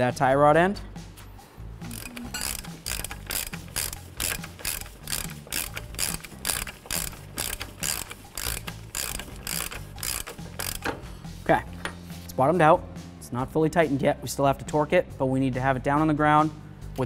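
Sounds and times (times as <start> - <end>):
hand ratchet clicking: 1.9 - 11.0.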